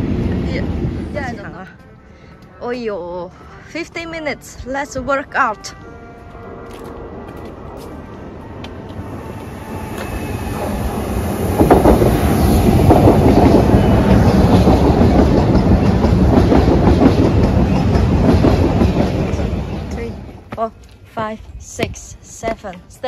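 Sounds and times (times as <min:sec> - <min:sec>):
train wheels rumbling on rails: 0:06.7 - 0:20.8.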